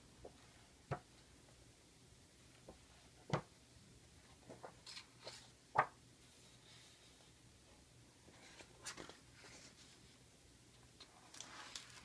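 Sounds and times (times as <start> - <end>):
book pages rustling: 4.4 - 5.9, 8.3 - 10.2, 11.0 - 12.0.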